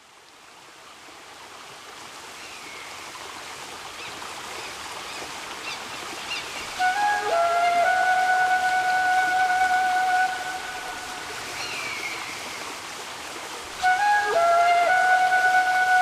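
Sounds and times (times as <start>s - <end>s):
even rushing hiss: 5.4s - 16.0s
music with long held notes: 6.8s - 11.4s, 13.8s - 16.0s.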